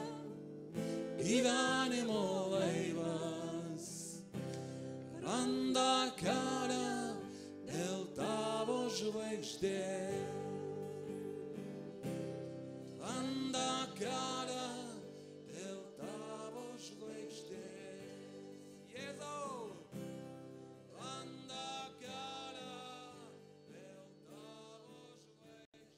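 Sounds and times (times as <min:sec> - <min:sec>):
person singing: 0:00.0 - 0:20.0
acoustic guitar: 0:00.0 - 0:25.9.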